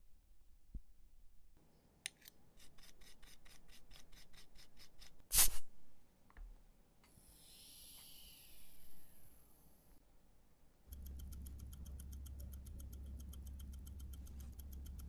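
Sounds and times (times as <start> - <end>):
hiss: 7.2 - 9.4.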